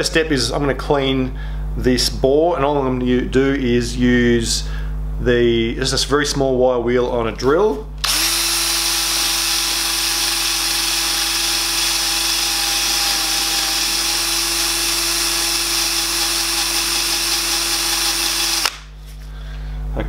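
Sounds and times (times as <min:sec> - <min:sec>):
drill motor hum: 0:08.0 - 0:18.8.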